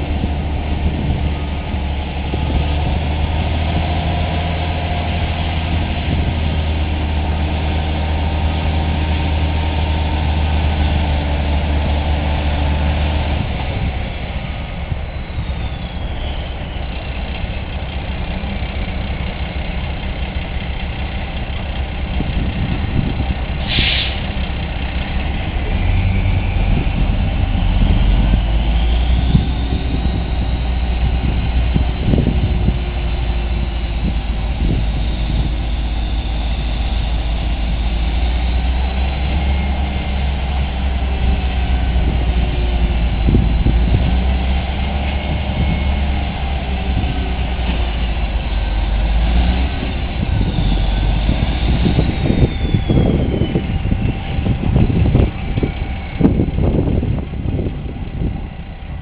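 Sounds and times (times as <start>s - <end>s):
truck engine idling: 0.0s - 59.0s
high squeal: 13.7s - 17.7s, 23.0s - 31.8s, 33.8s - 40.6s, 41.3s - 57.7s.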